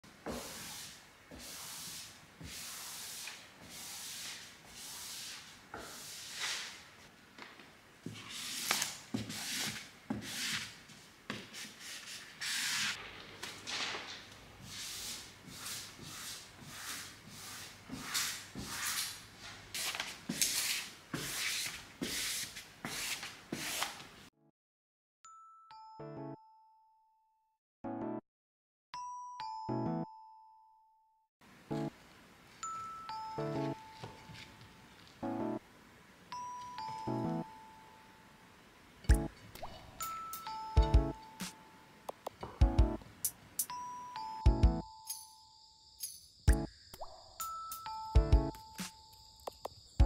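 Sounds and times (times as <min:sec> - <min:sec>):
scraping strokes over a surface: 0:00.3 - 0:07.1, 0:14.6 - 0:24.0
chime of ringing tones: 0:32.6 - 0:34.6, 0:36.3 - 0:38.3, 0:39.1 - 0:42.0, 0:43.6 - 0:49.5.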